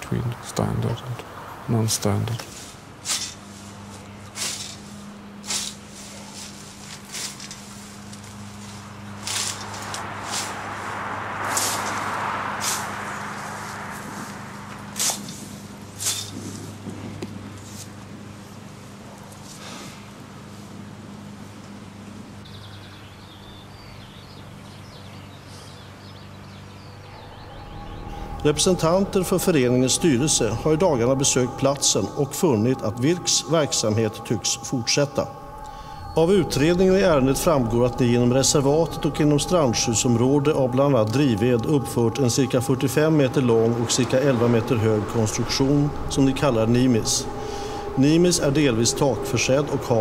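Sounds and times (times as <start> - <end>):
steady low hum: 0.0 - 50.0
hand tool swishing through grass: 2.4 - 16.8
small birds chirping: 21.6 - 37.4.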